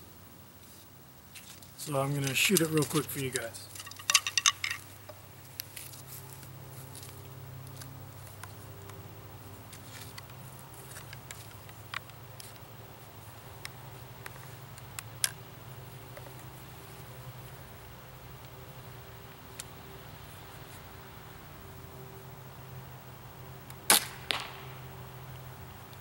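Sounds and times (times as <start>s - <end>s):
faint low hum: 0.0s - 26.0s
crossbow handling clicks: 1.4s - 6.0s, 9.7s - 12.7s, 13.6s - 15.5s.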